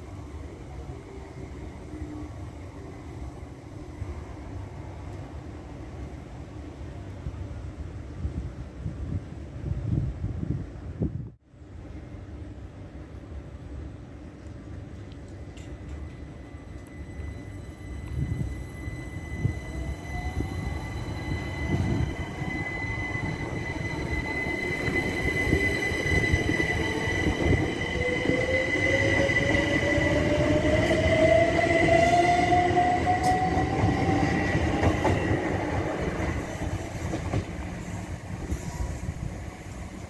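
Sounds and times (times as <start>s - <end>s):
train wheels rumbling on rail: 11.8s - 40.0s.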